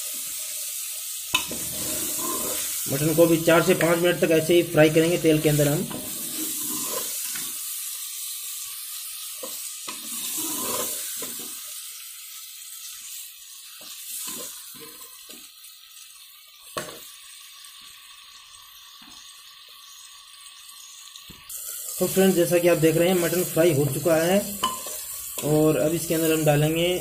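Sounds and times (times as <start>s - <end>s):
meat sizzling in oil: 0.0s - 27.0s
ladle scraping and clinking pot: 24.6s - 25.0s.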